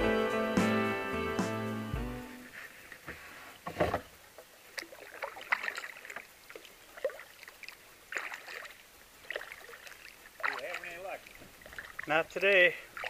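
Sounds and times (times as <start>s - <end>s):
kayak paddle splashing: 2.4s - 13.0s.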